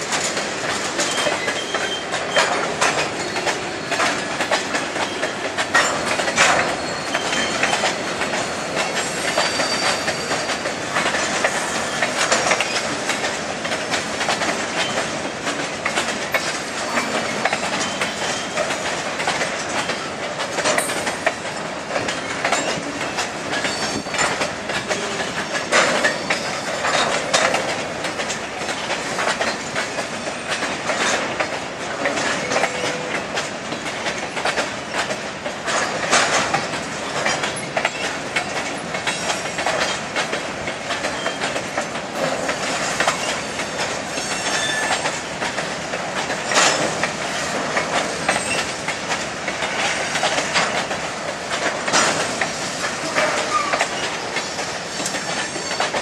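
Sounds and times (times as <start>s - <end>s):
train wheels clicking over rail joints: 0.0s - 56.0s
high wheel squeals: 1.0s - 2.6s, 6.6s - 10.5s, 44.1s - 45.1s, 55.0s - 56.0s.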